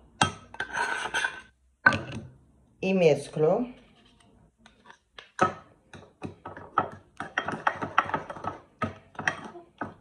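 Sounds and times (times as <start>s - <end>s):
metal spoon stirring paste in bowl: 0.1s - 1.6s, 3.8s - 10.0s.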